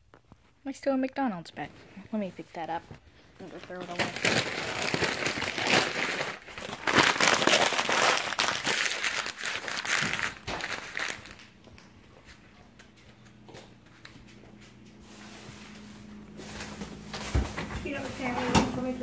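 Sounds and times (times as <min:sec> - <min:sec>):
paper bag crinkling: 0:03.3 - 0:11.6.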